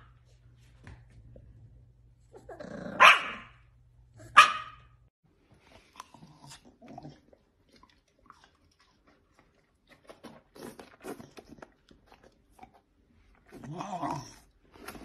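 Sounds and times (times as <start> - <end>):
dog chewing watermelon: 5.6 - 15.0.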